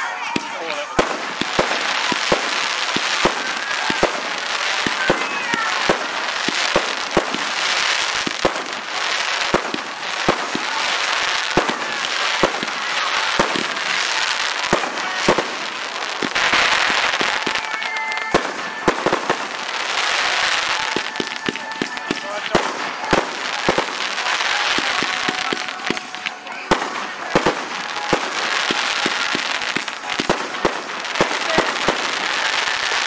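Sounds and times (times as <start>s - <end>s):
hiss and crackle of fireworks: 0.0s - 33.0s.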